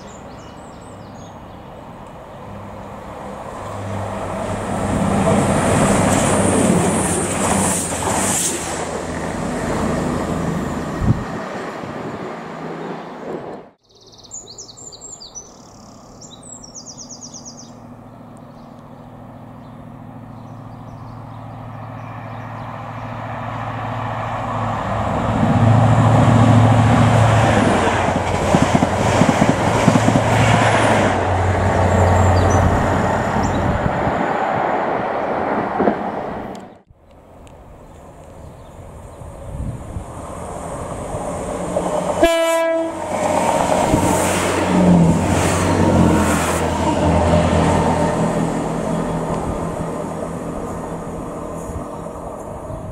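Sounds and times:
birds chirping: 0.0s - 1.8s, 13.0s - 23.2s, 32.0s - 32.8s, 37.8s - 39.6s
diesel locomotive engine approaching: 0.0s - 13.8s, 16.1s - 52.9s
diesel train passing: 0.0s - 13.8s, 16.2s - 52.9s.

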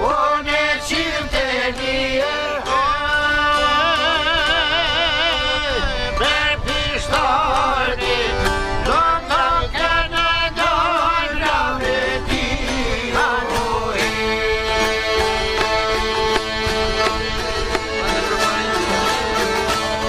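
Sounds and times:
accordion melody: 0.0s - 20.0s
plucked lutes: 0.0s - 20.0s
frame drum beat: 13.7s - 20.0s.

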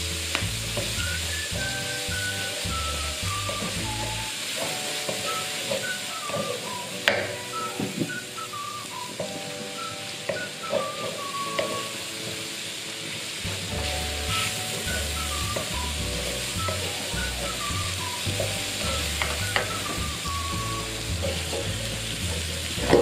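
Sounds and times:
background music: 0.0s - 23.0s
spice paste sizzling in wok: 0.0s - 23.0s
wooden spatula stirring: 13.6s - 20.2s.

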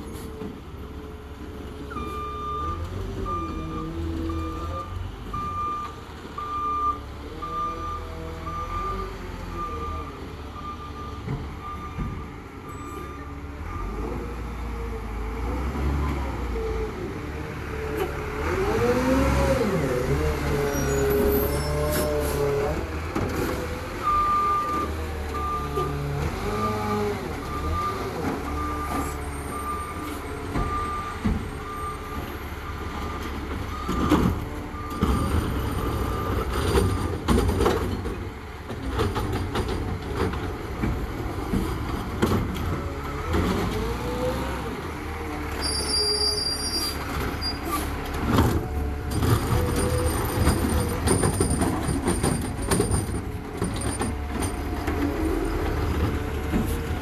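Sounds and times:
truck engine revving: 13.6s - 24.2s.

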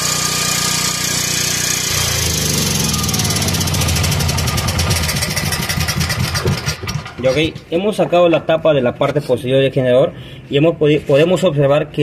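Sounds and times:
generator engine running: 0.0s - 7.7s.

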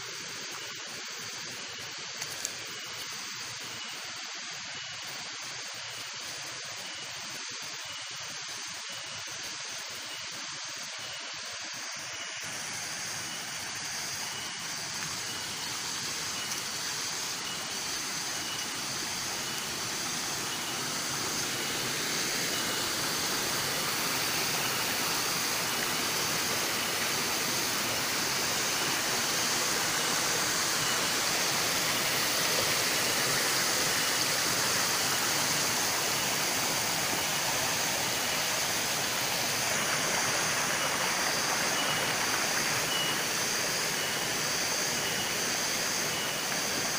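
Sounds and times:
stream trickling over rocks: 12.4s - 46.9s.

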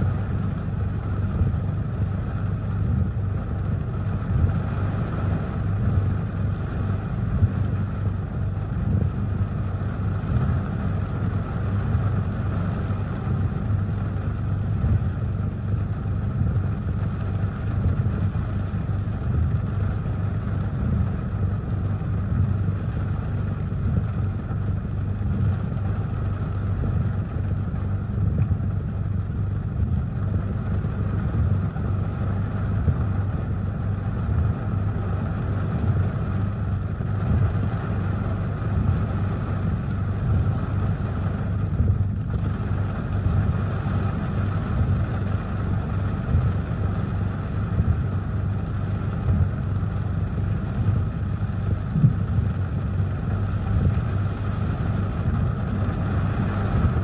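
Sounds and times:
heavy rain on a car: 0.0s - 57.0s
low rumble: 0.0s - 57.0s.

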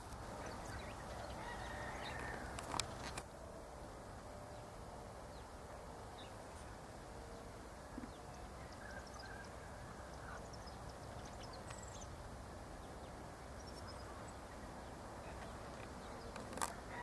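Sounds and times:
low outdoor hiss: 0.0s - 17.0s
distant birds chirping: 7.3s - 17.0s.

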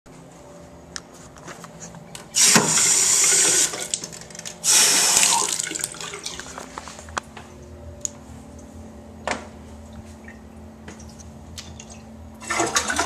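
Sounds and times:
water running from tap into basin: 2.4s - 4.0s, 4.7s - 6.4s.

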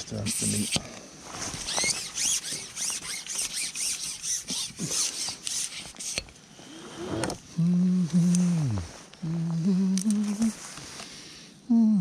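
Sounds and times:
man humming low note: 7.6s - 10.6s, 11.7s - 12.0s.

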